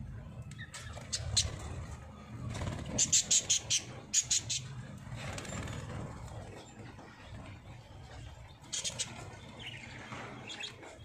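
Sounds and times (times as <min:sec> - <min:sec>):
budgerigars chirping: 0:00.6 - 0:01.7, 0:02.9 - 0:04.7, 0:08.6 - 0:10.9.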